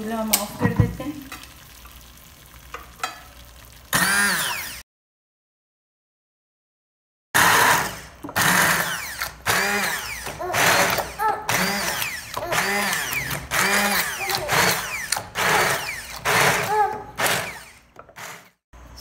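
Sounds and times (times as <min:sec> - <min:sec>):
immersion blender whirring: 0:03.9 - 0:04.8, 0:07.4 - 0:18.6.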